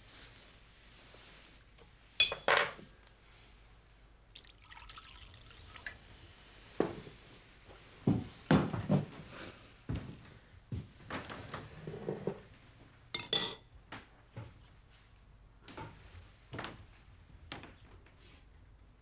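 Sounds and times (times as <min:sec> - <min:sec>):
crockery and glass clinking: 0:02.2 - 0:02.8, 0:06.8 - 0:07.2, 0:13.1 - 0:13.7
liquid pouring into bowl: 0:04.3 - 0:06.2.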